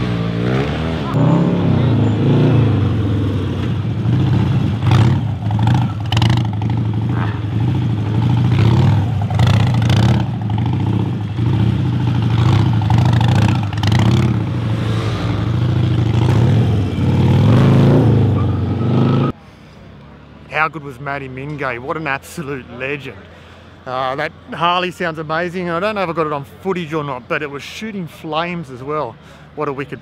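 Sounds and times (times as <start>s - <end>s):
motorcycle engine revving: 0.0s - 19.4s.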